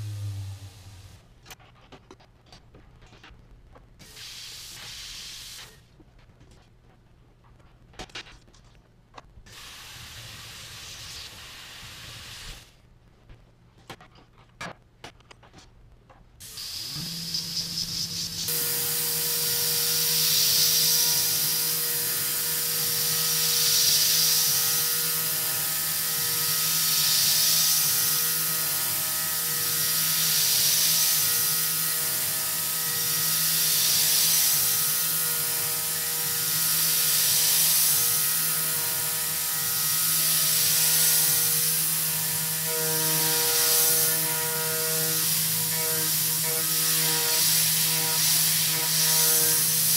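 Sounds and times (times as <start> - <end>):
mill spindle hum and whine: 0.0 - 1.3, 16.4 - 49.9
cutting hiss: 16.4 - 49.9.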